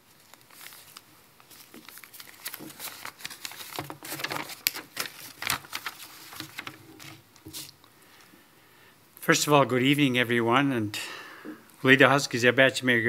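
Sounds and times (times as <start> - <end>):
paper rustling and crinkling: 0.0 - 7.8.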